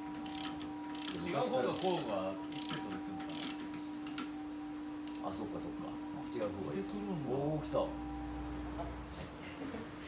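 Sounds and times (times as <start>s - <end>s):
steady hum: 0.0s - 10.0s
ratchet wrench clicking: 0.2s - 3.6s.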